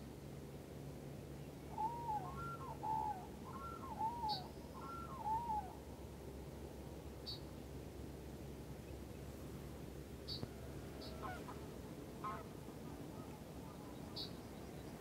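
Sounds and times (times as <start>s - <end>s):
small bird chirping: 10.2s - 11.2s, 13.8s - 15.0s
geese honking: 11.0s - 11.6s, 12.2s - 13.9s.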